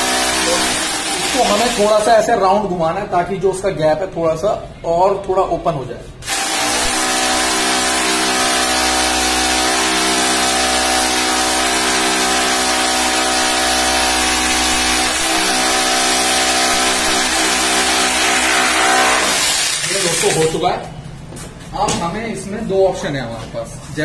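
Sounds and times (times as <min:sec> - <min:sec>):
electric drill running: 0:00.0 - 0:02.1, 0:06.2 - 0:20.6.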